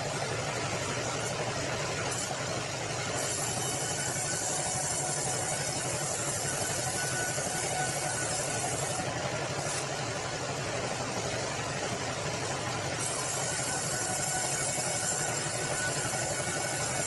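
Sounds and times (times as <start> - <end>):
bandsaw running: 0.0 - 17.0.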